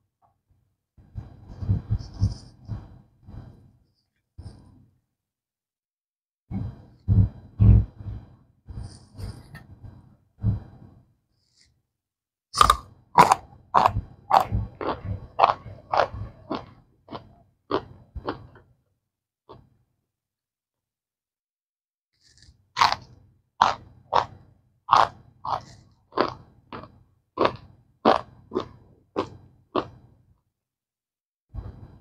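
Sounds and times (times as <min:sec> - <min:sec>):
crunchy chewing: 0:12.6 - 0:18.7, 0:22.2 - 0:30.1.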